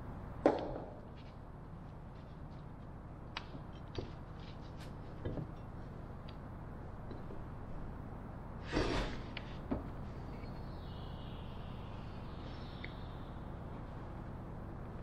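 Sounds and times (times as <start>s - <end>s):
steady low hum: 0.0s - 15.0s
scrape on workbench: 8.7s - 9.2s.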